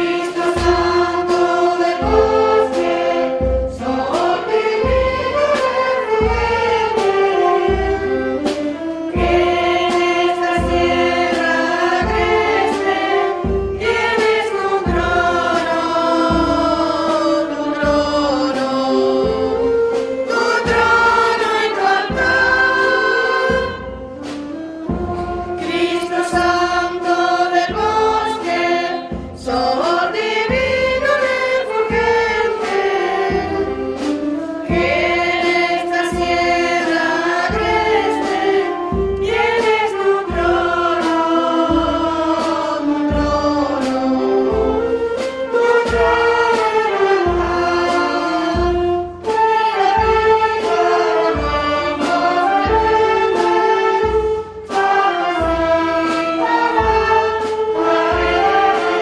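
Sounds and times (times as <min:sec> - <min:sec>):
choir singing a hymn: 0:00.0 - 0:59.0
musical accompaniment: 0:00.0 - 0:59.0.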